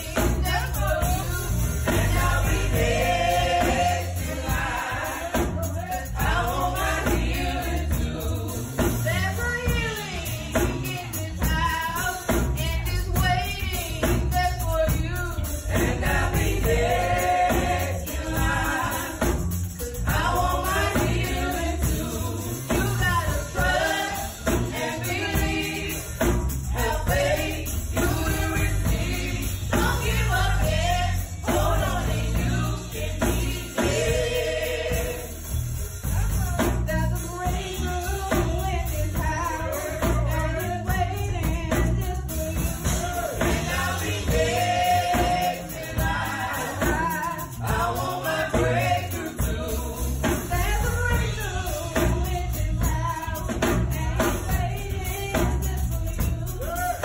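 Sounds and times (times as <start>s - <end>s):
drum kit: 0.0s - 57.0s
vocal group singing gospel: 0.0s - 57.0s.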